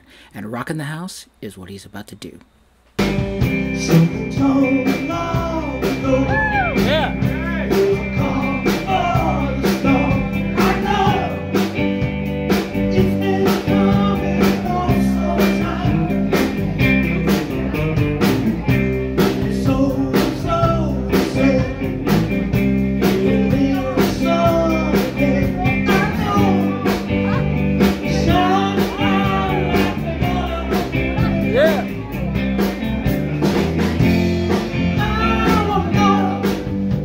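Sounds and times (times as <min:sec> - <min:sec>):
live rock band playing: 0:03.0 - 0:37.0
man singing into microphone: 0:03.8 - 0:11.5, 0:12.9 - 0:16.4, 0:19.4 - 0:22.1, 0:23.0 - 0:27.4, 0:28.0 - 0:31.9, 0:35.0 - 0:36.6.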